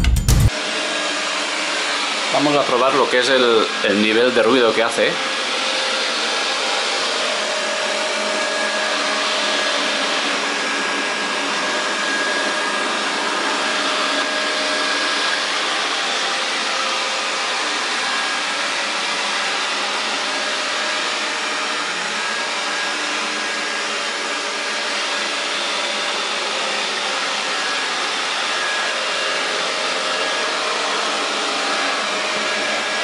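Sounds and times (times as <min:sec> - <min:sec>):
robot vacuum fan whirring: 0:00.5 - 0:33.0.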